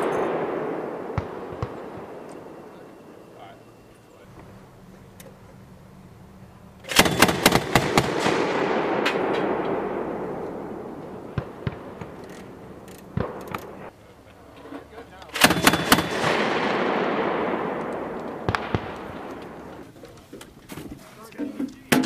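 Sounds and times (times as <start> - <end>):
distant gunshot reports: 0.0 - 3.5, 6.9 - 13.9, 15.4 - 19.9
rolling echo: 0.0 - 20.7
grenade launcher firing burst: 6.9 - 12.2, 15.4 - 19.6.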